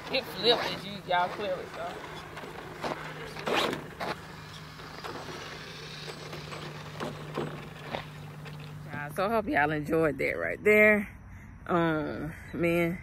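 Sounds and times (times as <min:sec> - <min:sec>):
rc truck motor and tyre noise: 0:00.0 - 0:09.2.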